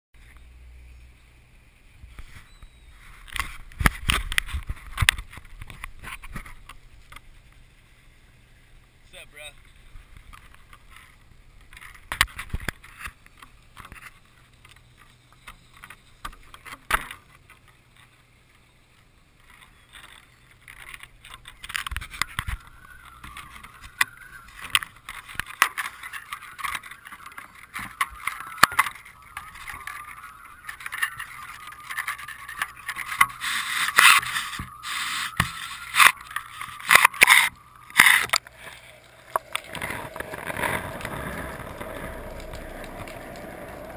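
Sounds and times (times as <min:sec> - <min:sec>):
water splashing against camera: 0:20.7 - 0:43.9.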